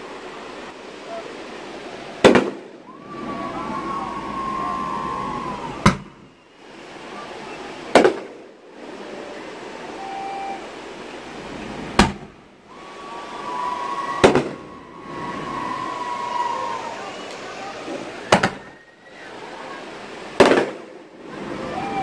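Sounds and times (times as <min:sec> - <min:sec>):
firework bangs: 0:02.2 - 0:03.5, 0:05.7 - 0:06.3, 0:07.9 - 0:08.5, 0:14.1 - 0:15.7, 0:17.1 - 0:18.8, 0:20.4 - 0:21.1
firework whistle: 0:02.2 - 0:06.8, 0:09.8 - 0:10.8, 0:12.7 - 0:19.6.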